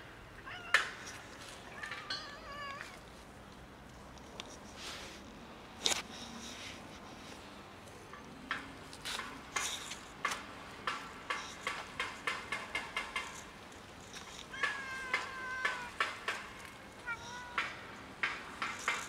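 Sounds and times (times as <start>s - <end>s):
cat meowing: 0.4s - 0.9s, 1.6s - 3.0s, 14.5s - 16.0s, 17.0s - 17.7s.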